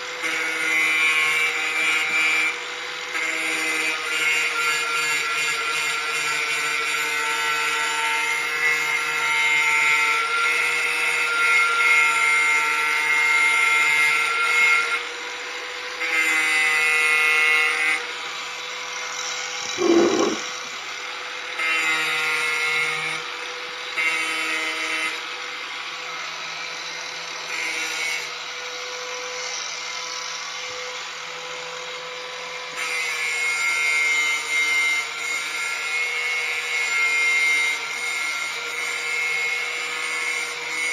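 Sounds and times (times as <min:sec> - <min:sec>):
angle grinder grinding metal: 0:11.5 - 0:31.2.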